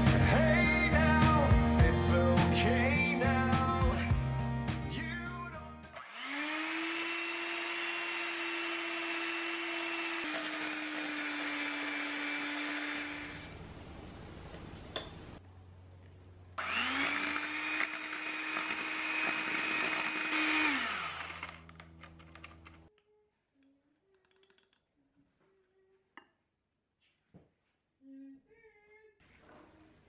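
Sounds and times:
kitchen appliance motor whirring: 5.9 - 13.6, 16.6 - 22.8.

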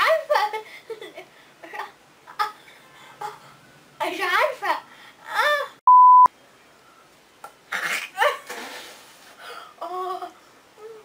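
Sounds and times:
censor bleep: 5.9 - 6.3.

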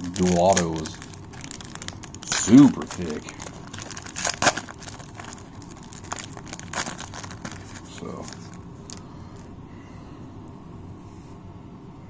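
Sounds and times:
foil pack tearing and crackling: 0.0 - 9.0
wrapper rustling: 0.0 - 9.5.

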